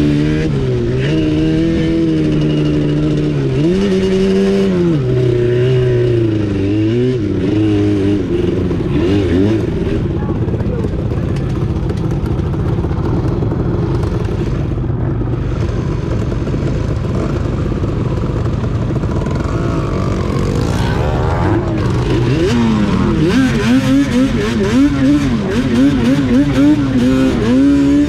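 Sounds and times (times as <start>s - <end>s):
atv engines revving: 0.0s - 28.0s.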